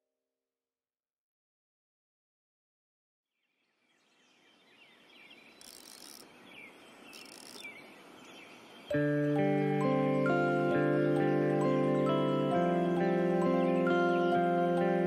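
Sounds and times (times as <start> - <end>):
birds chirping: 3.7 - 15.0
soft chiming music notes: 8.9 - 15.0.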